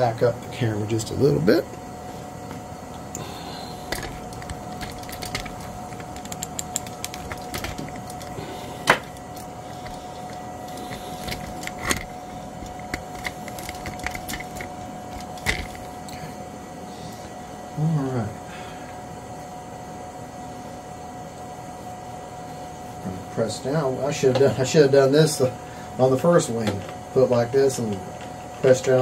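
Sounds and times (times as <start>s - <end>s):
faint steady hum: 0.0s - 29.0s
clicks and knocks of handling tools: 3.9s - 15.9s.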